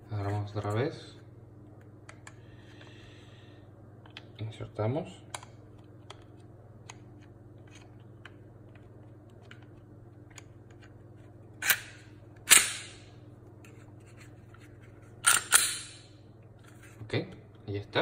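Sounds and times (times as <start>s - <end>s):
pistol slide metallic clacks: 15.2s - 16.0s.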